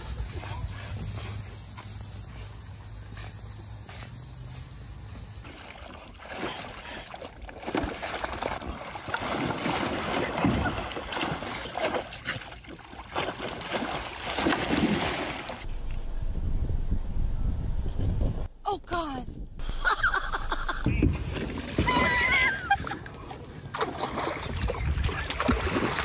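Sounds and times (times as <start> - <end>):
river water splashing: 4.9 - 15.7, 20.9 - 26.0
wind on microphone: 15.6 - 18.6, 24.3 - 26.0.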